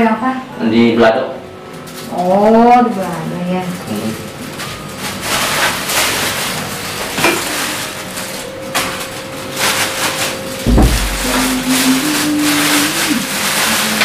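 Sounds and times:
heavy thud: 0:10.7 - 0:11.6.

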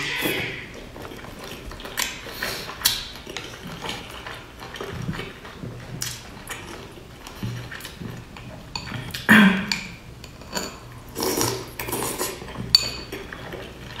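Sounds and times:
chewing dumpling: 0:00.0 - 0:14.0
slurping from bowl: 0:10.6 - 0:14.0.

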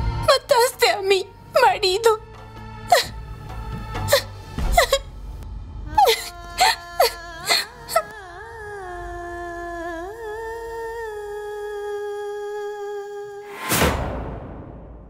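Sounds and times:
soft background music: 0:00.0 - 0:12.6
woman sobbing: 0:02.9 - 0:03.2, 0:03.8 - 0:05.1, 0:05.9 - 0:10.6.

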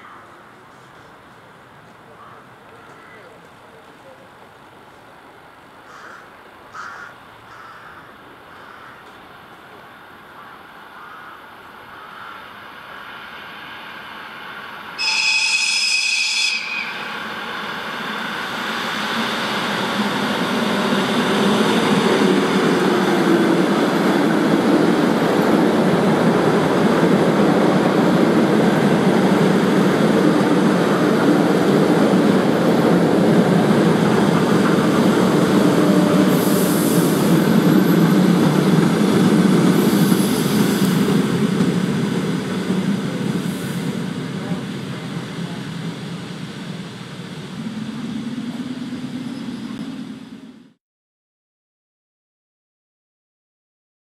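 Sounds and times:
train rumbling past: 0:09.2 - 0:50.8
train horn blast: 0:15.0 - 0:17.2, 0:35.2 - 0:37.2.

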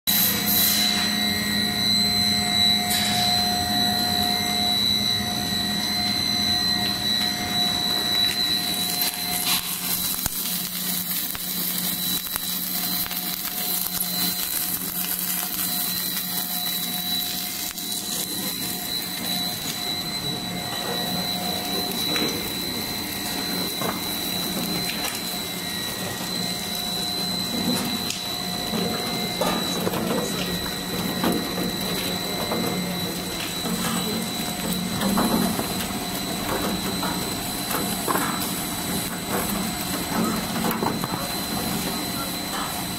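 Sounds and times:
machine drone with whine: 0:00.1 - 0:42.9.

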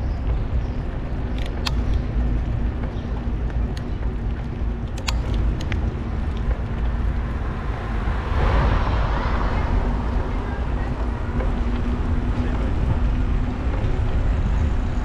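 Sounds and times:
wind and road noise: 0:00.0 - 0:15.0
sharp irregular clicks: 0:01.3 - 0:02.2, 0:02.8 - 0:07.3.

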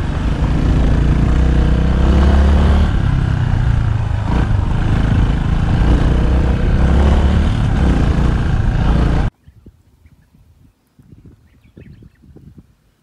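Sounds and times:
motorbike engine running: 0:00.0 - 0:09.3.

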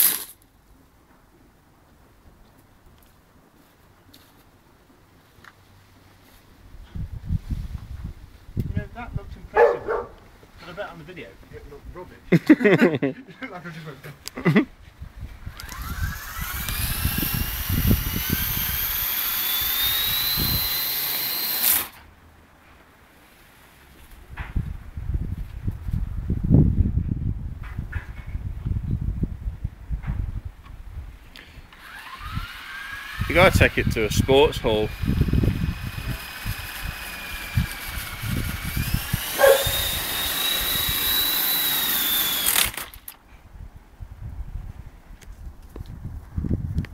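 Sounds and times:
rc helicopter motor whine: 0:15.4 - 0:22.0, 0:31.7 - 0:43.2.

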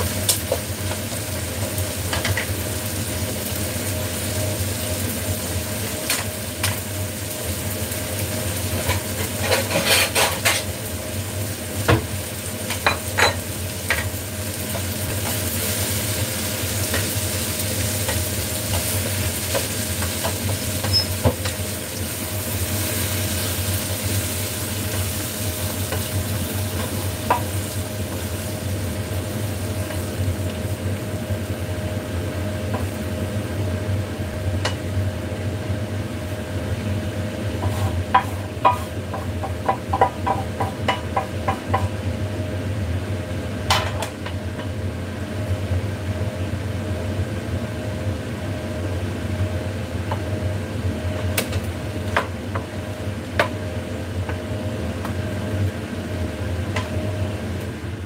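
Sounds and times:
kitchen exhaust fan humming: 0:00.0 - 0:58.0
spatula scraping frying pan: 0:08.8 - 0:10.7, 0:37.6 - 0:39.3.

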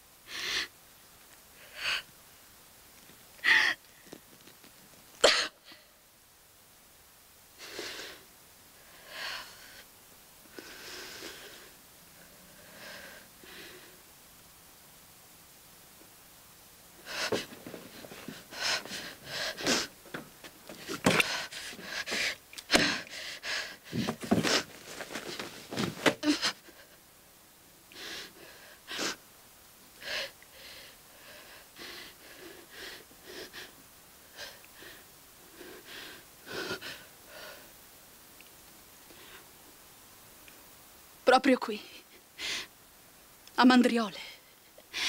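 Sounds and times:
woman gasping and panting: 0:17.0 - 0:27.0.

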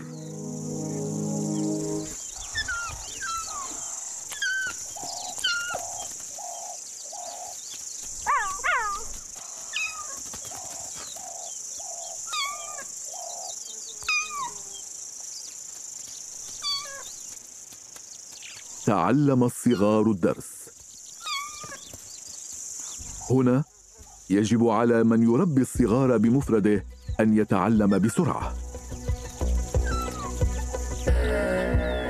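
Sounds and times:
lower animal call: 0:00.0 - 0:06.0, 0:28.9 - 0:32.0
cheetah chirping: 0:00.0 - 0:07.6, 0:08.2 - 0:14.8, 0:16.4 - 0:17.2, 0:21.0 - 0:24.4, 0:26.9 - 0:32.0
insect hiss: 0:00.0 - 0:32.0.

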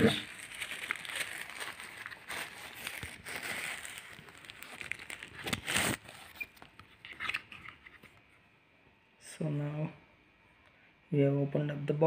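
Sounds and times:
plastic and cardboard rustling: 0:00.0 - 0:08.3.

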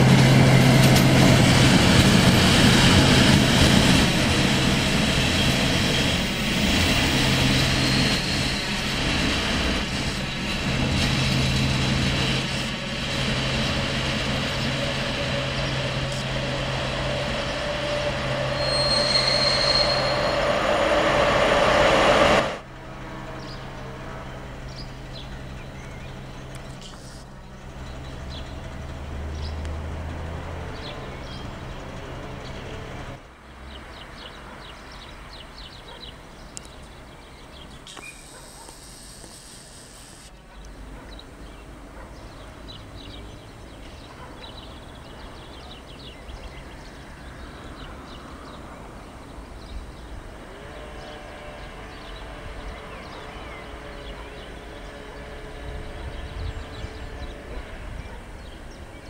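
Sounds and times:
diesel locomotive engine drone: 0:00.0 - 0:59.0
birds chirping: 0:33.7 - 0:59.0.

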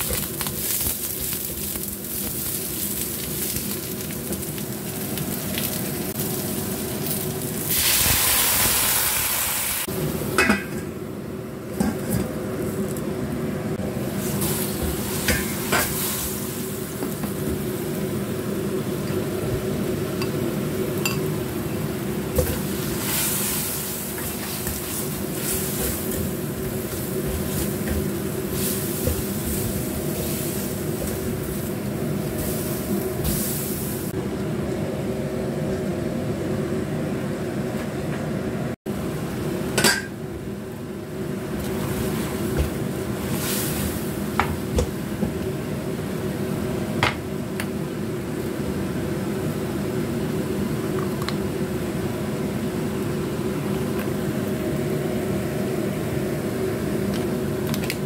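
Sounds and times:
food sizzling in a wok: 0:00.0 - 0:10.8, 0:13.8 - 0:34.2, 0:39.0 - 0:50.9
metal lid clanking: 0:10.4 - 0:10.9.

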